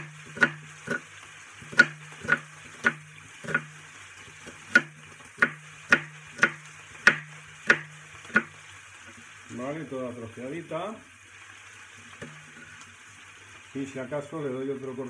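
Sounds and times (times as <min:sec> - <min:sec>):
knife chopping on wooden board: 0:00.0 - 0:01.0, 0:01.7 - 0:03.7, 0:04.4 - 0:08.6
faint sizzle of beef browning: 0:00.0 - 0:15.0.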